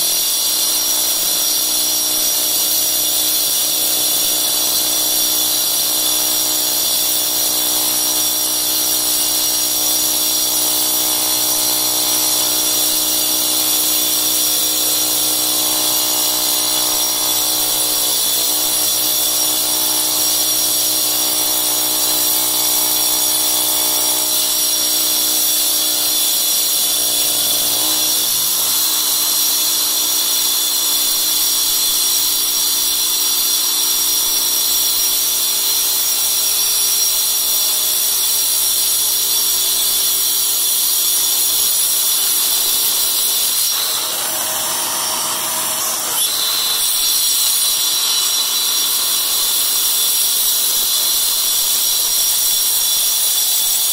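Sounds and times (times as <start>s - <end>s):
angle grinder cutting tile: 0.0s - 53.9s
vacuum running: 43.7s - 46.8s.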